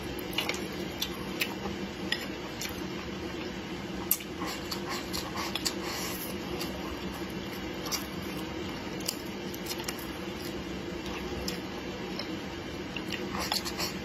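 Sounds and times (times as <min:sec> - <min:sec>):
steady low hum: 0:00.0 - 0:14.0
wet chewing mouth sounds: 0:04.1 - 0:14.0.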